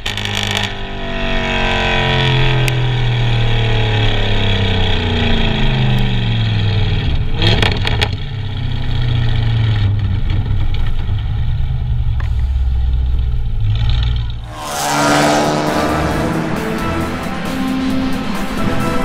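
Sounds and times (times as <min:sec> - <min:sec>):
car exhaust drone: 0:00.0 - 0:19.0
exhaust crackles: 0:00.0 - 0:19.0.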